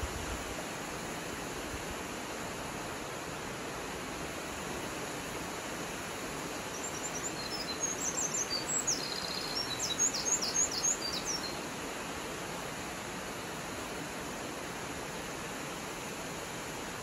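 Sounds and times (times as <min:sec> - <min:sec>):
bird chirping: 0:06.7 - 0:11.6.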